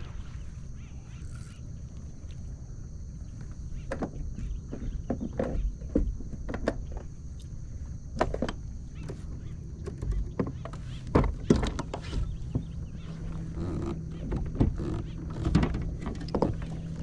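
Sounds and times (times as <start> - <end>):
steady low rumble: 7.1 - 17.0.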